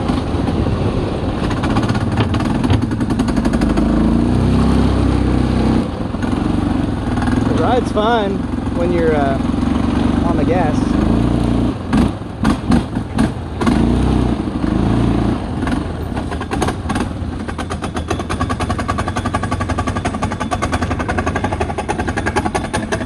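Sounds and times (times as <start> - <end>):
atv engine revving: 0.0 - 23.0
engine rough idle: 5.8 - 11.2, 15.5 - 23.0.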